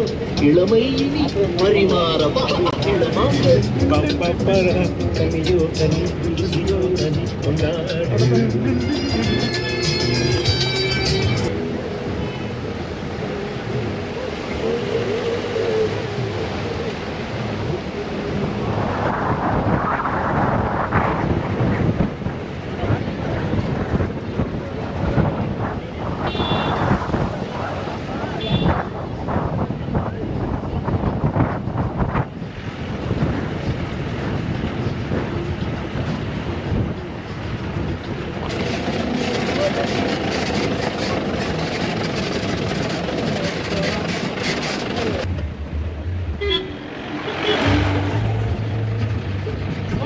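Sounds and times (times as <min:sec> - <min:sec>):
vehicle engine and tyres rumbling: 0:00.0 - 0:50.0
wind on microphone: 0:11.1 - 0:50.0.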